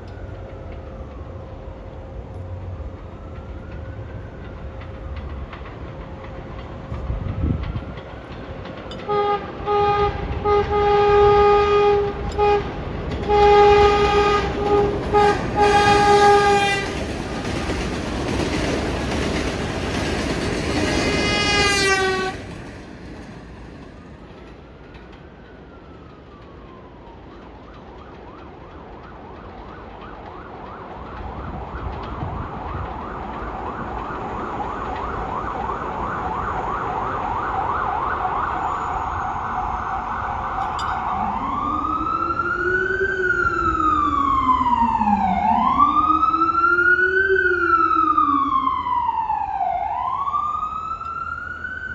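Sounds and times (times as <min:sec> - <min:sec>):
emergency siren wailing: 0:00.0 - 0:22.6, 0:23.7 - 0:51.9
train rumble: 0:00.0 - 0:51.9
subway train horn blasts: 0:08.9 - 0:17.1, 0:20.9 - 0:22.6.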